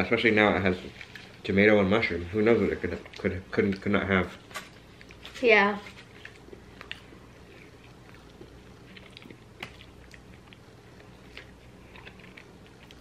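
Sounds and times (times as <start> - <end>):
chewing and biting food: 2.8 - 13.0.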